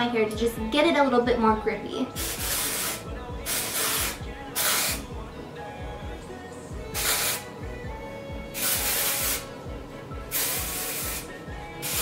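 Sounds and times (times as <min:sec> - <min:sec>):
aerosol spray can hissing: 0:02.2 - 0:05.1, 0:06.9 - 0:07.5, 0:08.5 - 0:09.5, 0:10.3 - 0:12.0.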